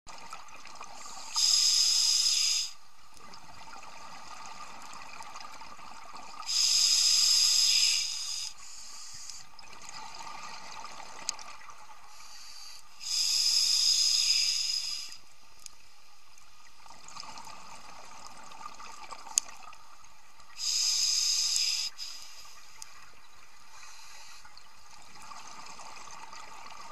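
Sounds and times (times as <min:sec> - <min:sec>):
diver breathing through regulator: 0:06.5 - 0:09.4, 0:12.1 - 0:15.2, 0:20.6 - 0:22.6.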